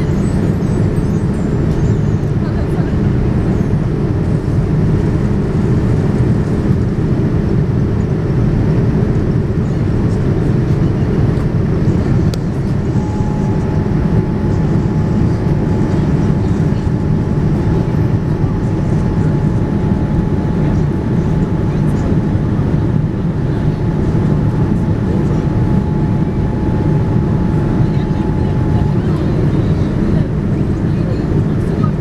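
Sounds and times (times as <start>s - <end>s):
airliner cabin engine rumble: 0.0s - 32.0s
faint steady hum: 11.8s - 32.0s
higher steady tone: 12.4s - 22.4s, 23.8s - 31.5s.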